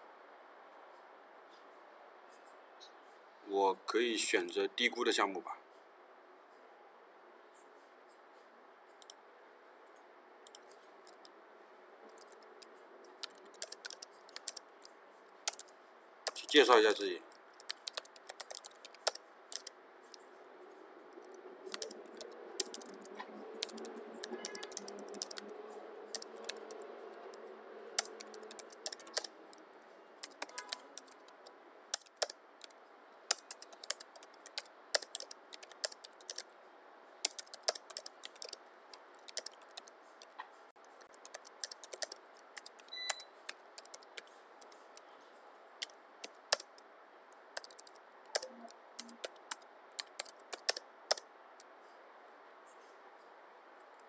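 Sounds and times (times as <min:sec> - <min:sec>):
keyboard typing clicks: 0:10.4 - 0:11.3, 0:12.1 - 0:15.7, 0:16.3 - 0:20.2, 0:21.1 - 0:25.5, 0:26.1 - 0:29.6, 0:30.2 - 0:36.5, 0:37.2 - 0:45.1, 0:45.8 - 0:46.9, 0:47.6 - 0:51.3.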